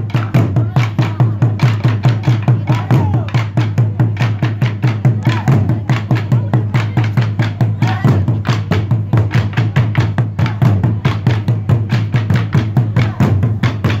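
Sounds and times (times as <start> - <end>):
drum ensemble beating fast rhythm: 0.0 - 14.0.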